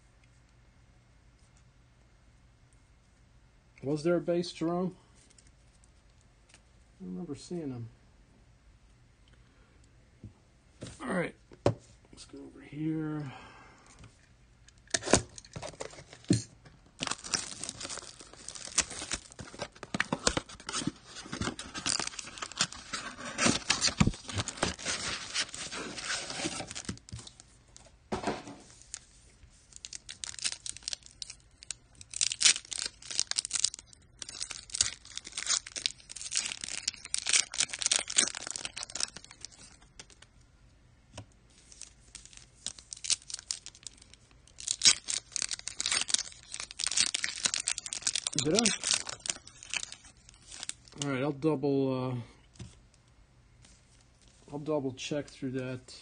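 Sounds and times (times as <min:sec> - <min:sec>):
plastic wrapping crinkling: 0:14.8 - 0:40.3, 0:41.5 - 0:51.1.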